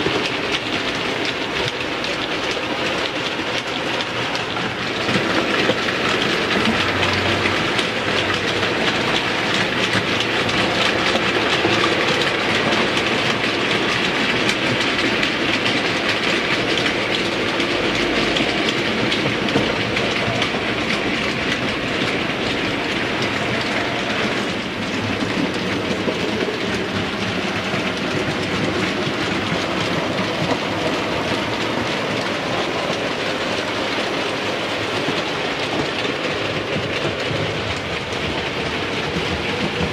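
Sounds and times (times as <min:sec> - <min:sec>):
model train rumble and whirr: 0:00.0 - 0:39.9
wheels clicking over rail joints: 0:00.0 - 0:39.9.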